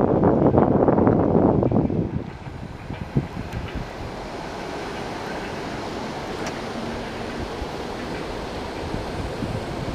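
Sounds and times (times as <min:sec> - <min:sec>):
train rumbling: 0:00.0 - 0:09.9
wind on microphone: 0:00.0 - 0:09.9.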